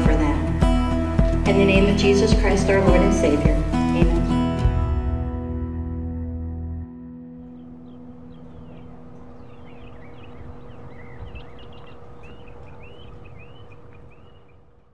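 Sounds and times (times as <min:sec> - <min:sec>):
small birds chirping: 0:07.4 - 0:14.9.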